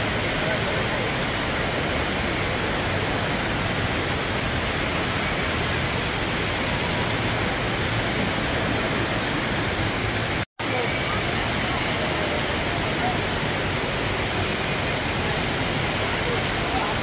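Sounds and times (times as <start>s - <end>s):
indoor waterfall splashing: 0.0s - 17.0s.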